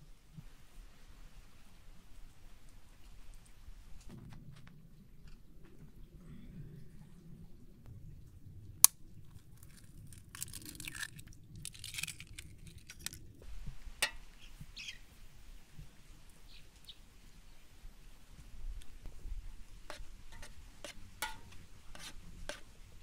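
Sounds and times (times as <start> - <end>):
eggshell crackling: 8.8 - 13.4
egg tapped on metal pot: 14.0 - 14.3, 21.2 - 22.1
faint bird chirps: 14.4 - 15.0.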